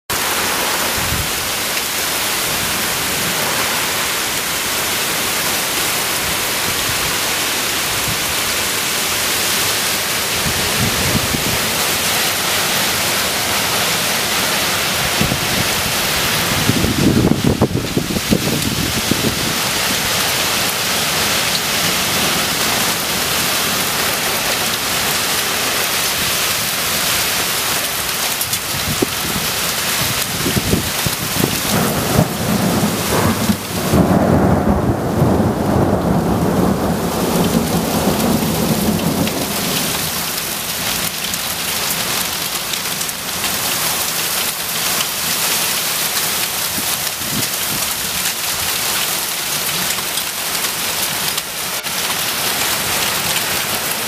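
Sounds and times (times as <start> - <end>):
heavy rain pouring: 0.1 - 54.0
thunder rumbling: 9.8 - 25.4, 28.6 - 41.3.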